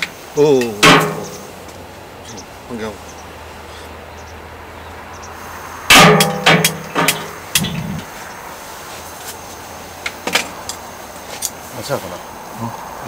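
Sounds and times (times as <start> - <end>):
metal utensils clanging on griddle: 0.0 - 1.6, 5.9 - 8.0
steady low rumble: 6.5 - 8.2.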